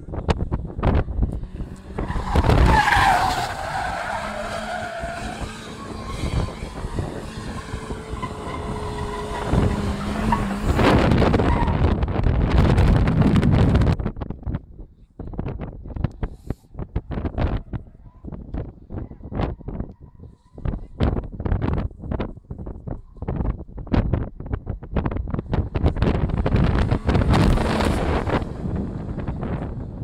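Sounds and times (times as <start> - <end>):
car engine: 0.0 - 13.7, 24.9 - 30.0
wind buffeting microphone: 0.0 - 30.0
car tyres squealing: 1.3 - 12.0.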